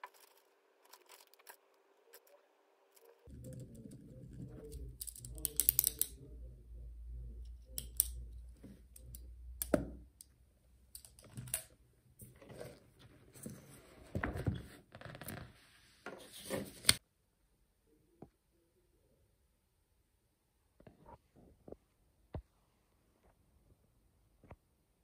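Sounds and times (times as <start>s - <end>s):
pens and paper clicking and rustling: 0.0s - 2.4s, 3.0s - 6.1s.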